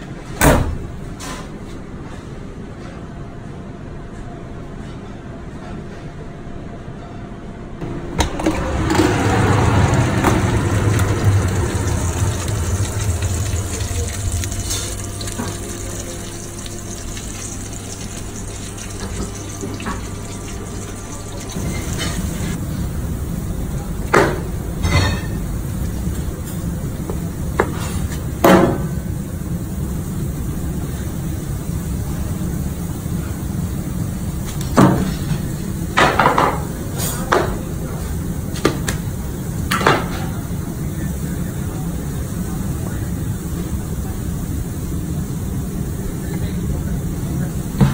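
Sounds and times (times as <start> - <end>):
low rumble: 7.8 - 27.5
low hum: 7.8 - 27.6
kitchen fans rushing: 7.8 - 47.9.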